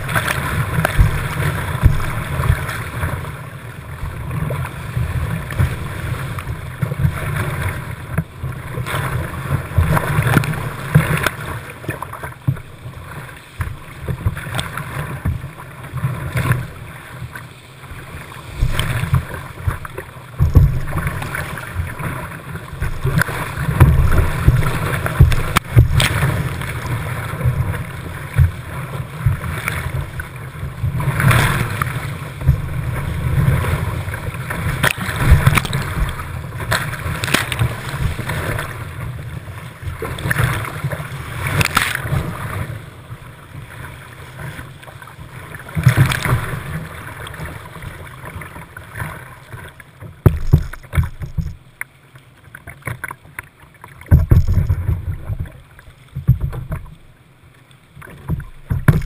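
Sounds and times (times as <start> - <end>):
knocks against kayak: 20.4 - 20.9, 23.8 - 26.2, 50.2 - 51.6, 54.0 - 55.6, 58.2 - 59.0.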